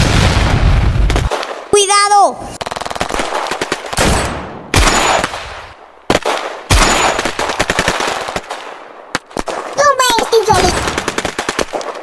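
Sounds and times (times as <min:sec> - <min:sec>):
heavy blasts: 0:00.0 - 0:01.3
machine-gun fire: 0:02.6 - 0:12.0.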